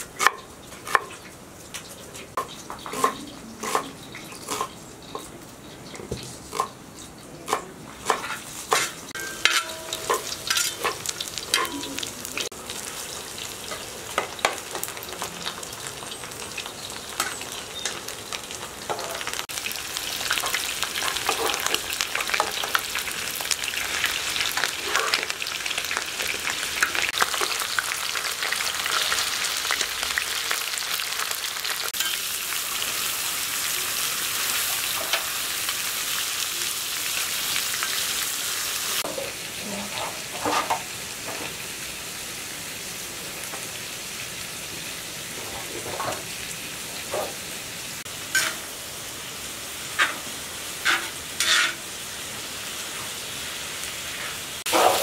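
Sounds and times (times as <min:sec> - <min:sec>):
metal spoon stirring in pan: 0:02.4 - 0:05.3, 0:07.5 - 0:12.5, 0:20.4 - 0:22.8, 0:32.0 - 0:32.4, 0:48.3 - 0:48.7, 0:50.0 - 0:51.9
meat sizzling in a pan: 0:08.5 - 0:55.0.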